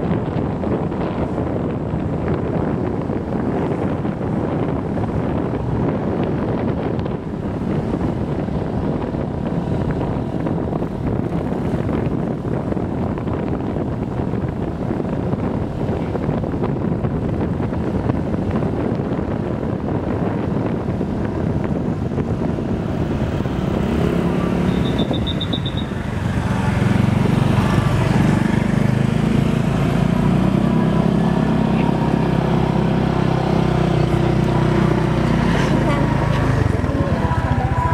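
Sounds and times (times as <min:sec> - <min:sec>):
wind rushing over microphone: 0:00.0 - 0:37.9
high-pitched beep: 0:24.6 - 0:25.9.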